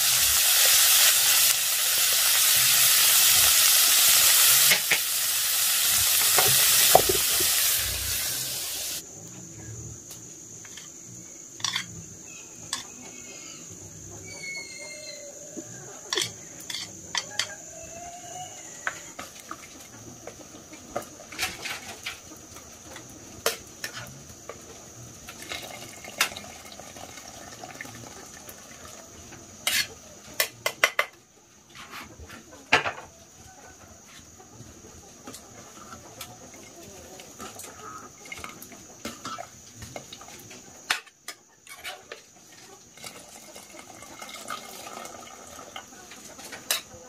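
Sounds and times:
chickens clucking: 0:11.6 - 0:25.4, 0:28.0 - 0:47.0.

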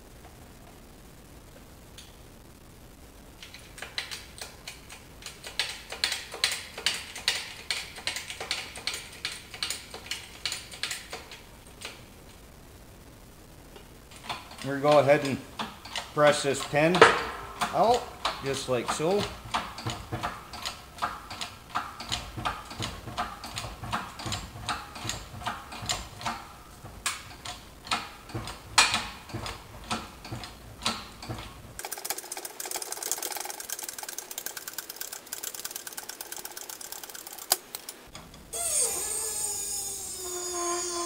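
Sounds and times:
shop press mechanical clicks: 0:03.4 - 0:12.0, 0:14.2 - 0:40.0
fast dense rattle: 0:15.8 - 0:38.1.

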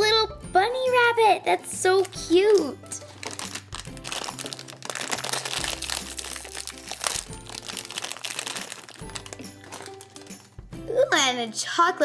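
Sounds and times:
light background music: 0:00.0 - 0:12.0
foil wrapper crinkling: 0:02.0 - 0:10.6.

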